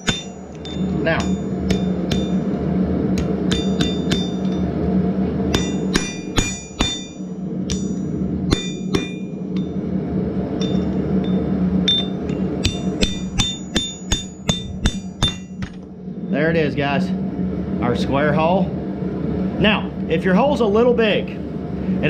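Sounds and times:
hammer ringing on steel: 0.0s - 2.4s, 3.5s - 4.6s, 5.5s - 9.7s, 10.6s - 15.7s.

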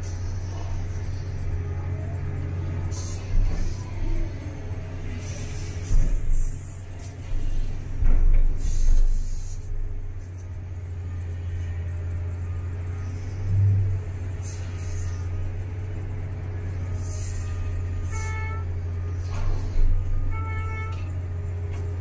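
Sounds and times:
excavator engine drone: 0.0s - 22.0s.

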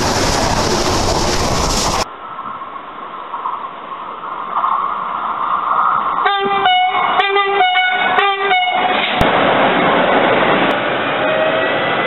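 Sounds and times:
train rushing noise: 0.0s - 12.0s
train horn short blasts: 6.2s - 8.9s.

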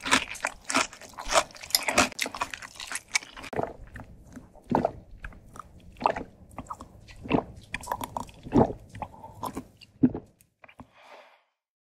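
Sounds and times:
gulping swallows: 2.3s - 10.9s.

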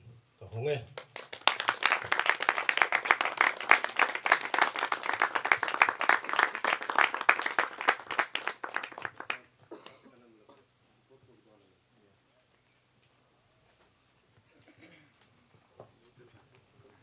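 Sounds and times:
people applauding: 1.0s - 9.5s.

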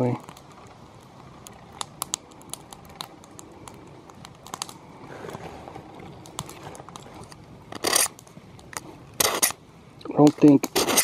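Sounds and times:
knife scraping through sharpener: 7.8s - 8.1s, 10.8s - 11.0s.

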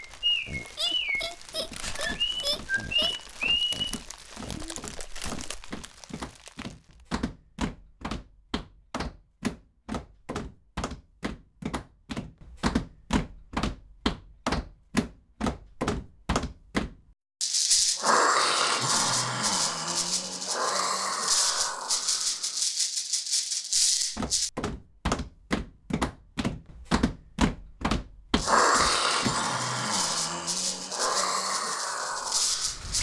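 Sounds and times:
whistled notes: 0.0s - 4.8s
shaker-like rattle: 17.4s - 24.5s, 28.4s - 33.0s.

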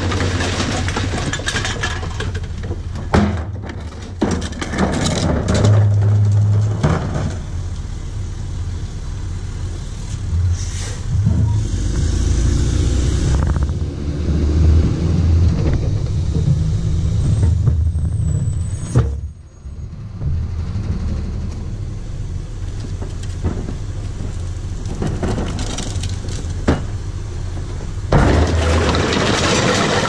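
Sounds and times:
knocks and rattles: 0.0s - 7.5s, 22.7s - 30.0s
garbage truck engine rumbling: 0.0s - 30.0s.

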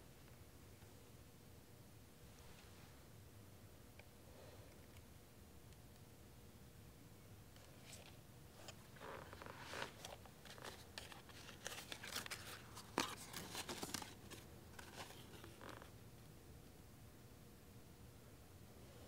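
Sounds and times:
paper rustling and crinkling: 7.6s - 15.9s.

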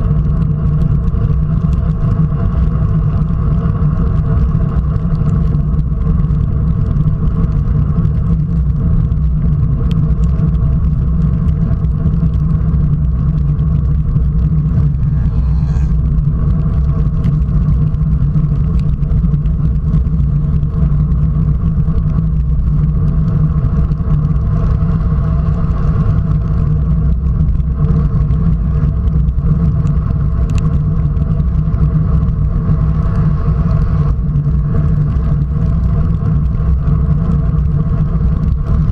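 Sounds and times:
bike tyres on wet road: 0.0s - 38.9s
wind rumble on microphone: 0.0s - 38.9s.

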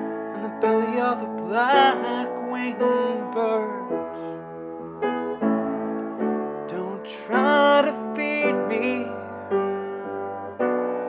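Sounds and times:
piano chords: 0.0s - 11.0s
man singing: 0.3s - 4.2s, 6.7s - 9.4s.

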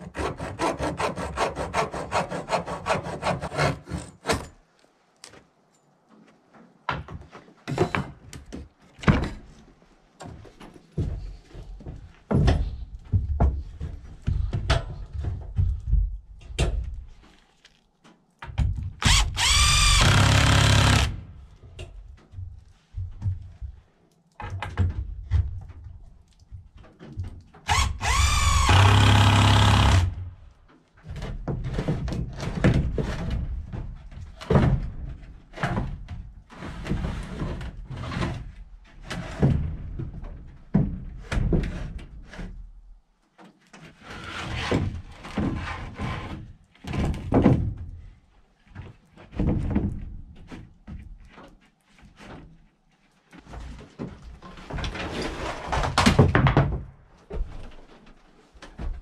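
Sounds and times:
cordless drill driving screw: 19.0s - 21.2s, 27.7s - 30.1s.

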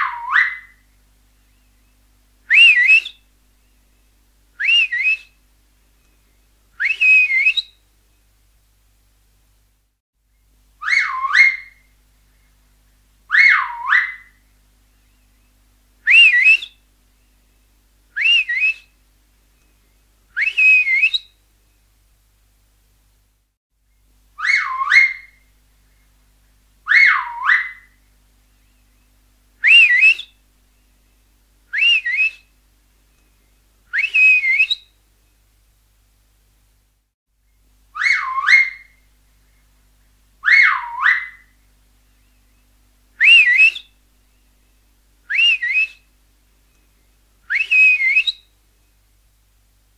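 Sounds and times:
finger whistling: 2.5s - 3.2s, 4.6s - 5.3s, 6.8s - 7.7s, 18.2s - 18.9s, 20.4s - 21.2s, 29.6s - 30.3s, 31.8s - 32.4s, 33.9s - 34.8s, 43.2s - 43.9s, 45.3s - 46.0s, 47.5s - 48.4s.

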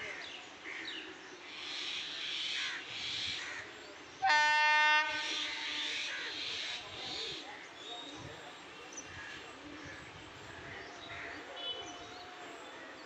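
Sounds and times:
train horn blast: 4.2s - 6.0s.

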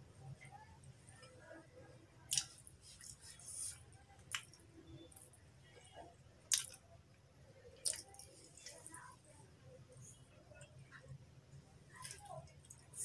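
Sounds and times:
squishy chewing: 2.3s - 3.4s.

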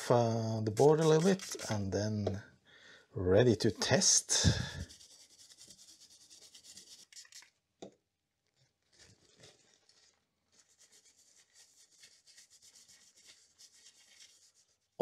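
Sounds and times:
brush rubbing on paper towel: 0.7s - 1.8s, 4.4s - 7.4s, 8.8s - 15.0s
toothbrush scrubbing circuit board: 0.7s - 1.9s, 4.8s - 7.5s.

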